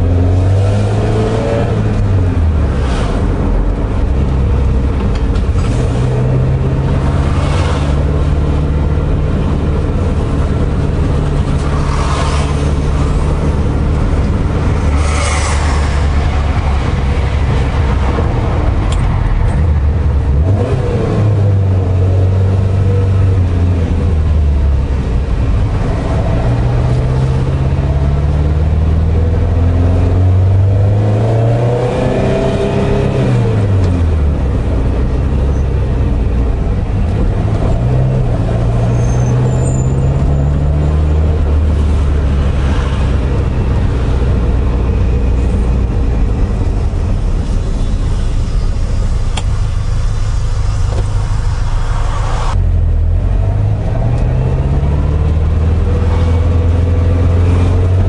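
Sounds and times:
car engine running and revving: 0.0 - 58.0
short rushes of noise: 14.6 - 16.9.

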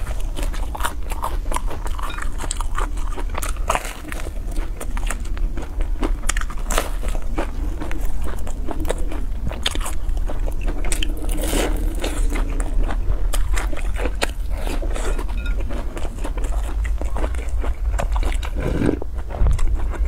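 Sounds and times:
crunchy chewing: 0.0 - 20.0
steady low hum: 0.0 - 20.0
wet mouth sounds: 16.7 - 20.0.

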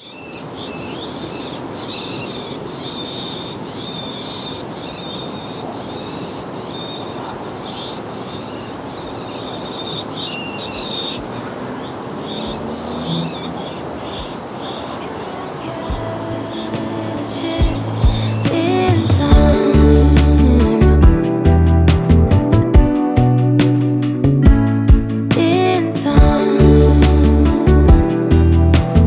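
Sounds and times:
bird harsh raspy calls: 0.0 - 19.3
steady background hiss: 0.0 - 21.5.

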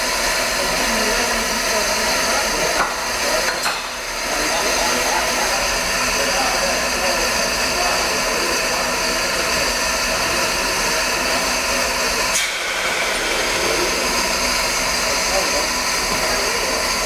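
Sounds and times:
steam locomotive safety valve hiss: 12.2 - 16.9.

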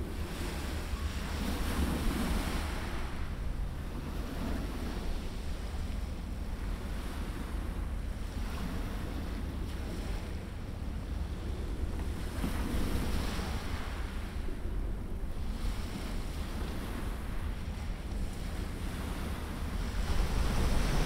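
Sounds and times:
surf washing over shallow water: 0.0 - 21.0
wind rumbling on microphone: 0.0 - 21.0.

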